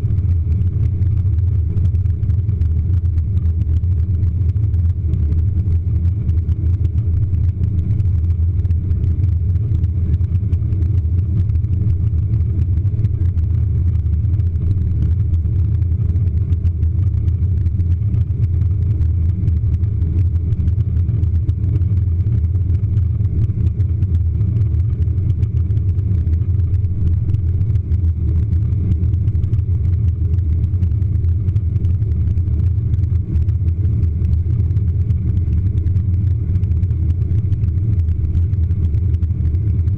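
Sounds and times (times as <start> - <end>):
jet cabin engine rumble: 0.0 - 39.9.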